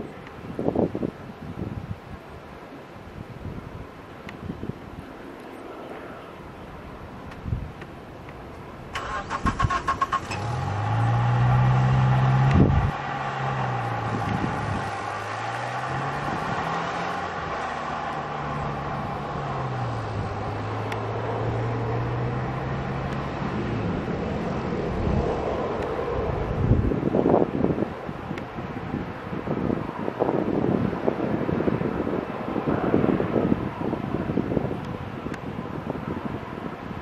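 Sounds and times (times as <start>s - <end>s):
jet engine whine: 23.8s - 27.1s.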